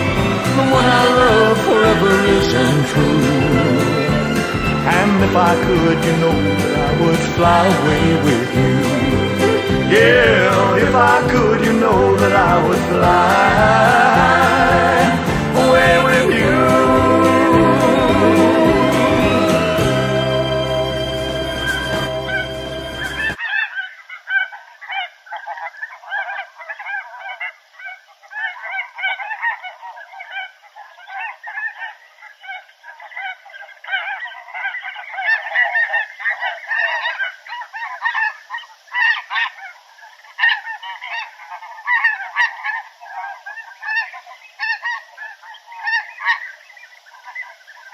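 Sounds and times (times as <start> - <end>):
song: 0.0 - 23.4
geese honking: 0.0 - 47.9.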